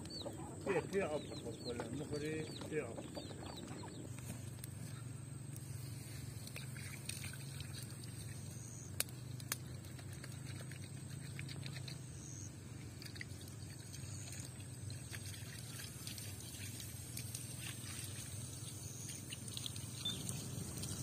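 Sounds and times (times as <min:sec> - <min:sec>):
steady low hum: 0:00.0 - 0:21.0
campfire crackling: 0:04.1 - 0:06.5, 0:08.4 - 0:10.5.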